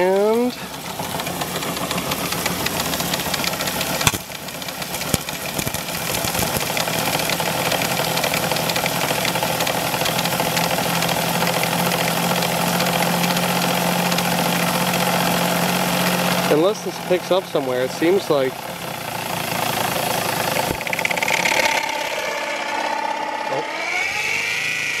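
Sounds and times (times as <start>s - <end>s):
turbine mechanical hum: 0.0s - 25.0s
sharp clicks: 5.1s - 7.4s.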